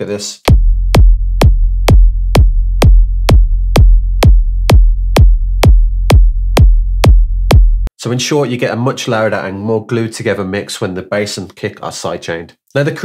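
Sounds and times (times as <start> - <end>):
electronic kick drum: 0.5 - 7.9
held sub-bass note: 0.5 - 7.9.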